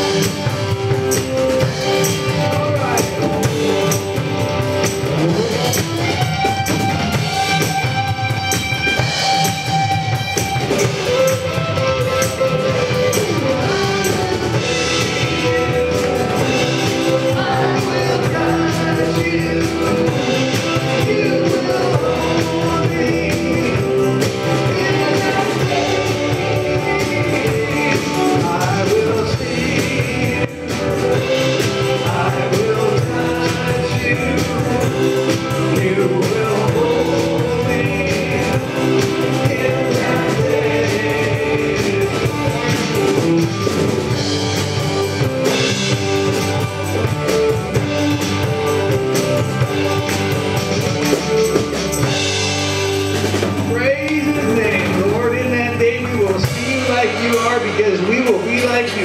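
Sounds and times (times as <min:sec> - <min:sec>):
drum kit: 0:00.0 - 0:59.0
electric guitar: 0:00.0 - 0:59.0
live worship band playing: 0:00.0 - 0:59.0.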